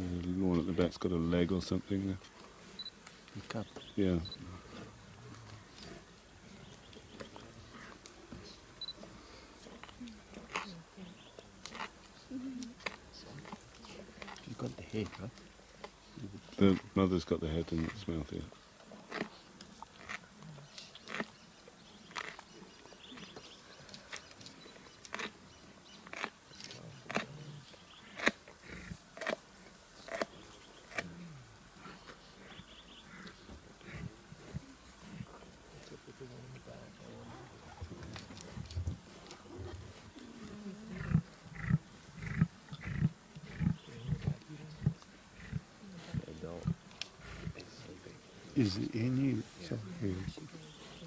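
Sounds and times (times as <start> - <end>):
lions chewing and crunching bones: 0.0 - 51.0
lion grunting: 30.1 - 51.0.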